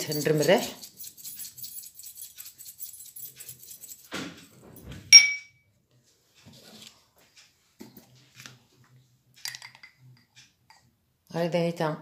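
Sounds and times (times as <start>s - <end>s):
spoon scraping in a bowl: 0.0s - 4.1s
clink of metal on ceramic: 5.2s - 5.6s.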